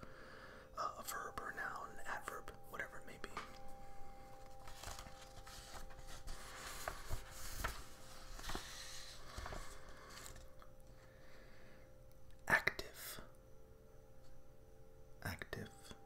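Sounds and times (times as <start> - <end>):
paper rustling: 4.4 - 10.6.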